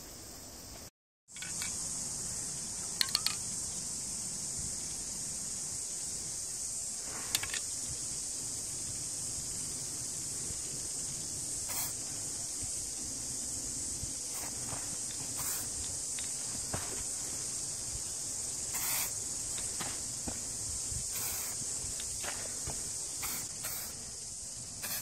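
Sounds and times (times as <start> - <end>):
high-pitched insect chorus: 0.0 - 25.0
spray paint can hiss: 2.8 - 3.8, 6.4 - 25.0.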